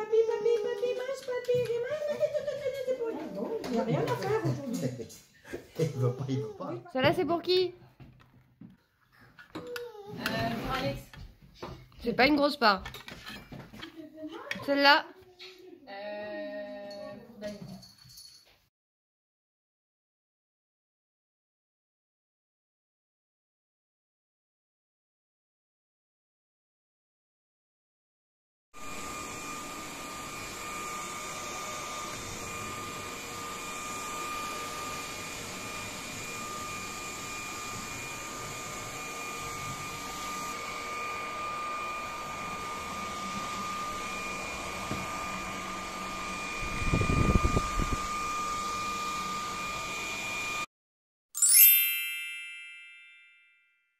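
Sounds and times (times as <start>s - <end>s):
stick vacuum cleaner whining: 28.8s - 50.7s
bright chime: 51.4s - 53.9s.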